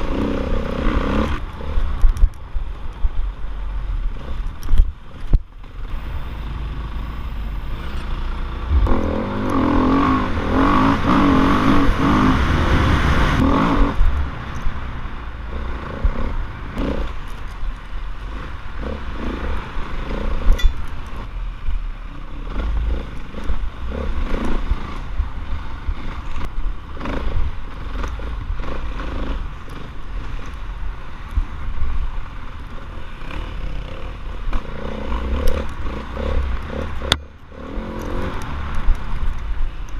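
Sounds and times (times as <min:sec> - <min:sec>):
dirt bike engine revving: 0:00.0 - 0:01.9, 0:05.8 - 0:14.2, 0:22.4 - 0:30.4, 0:33.0 - 0:38.9.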